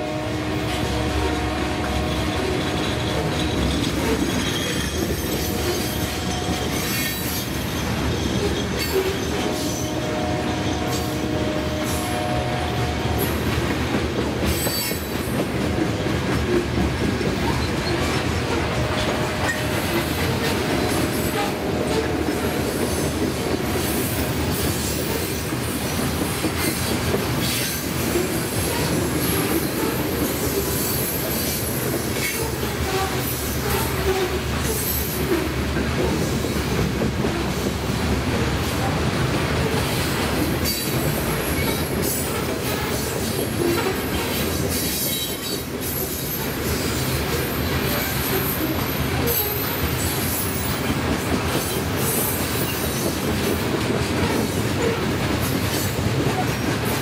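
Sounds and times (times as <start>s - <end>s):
freight train wheels rumbling: 0.0s - 57.0s
wheel squeals: 2.0s - 9.9s, 14.5s - 15.2s.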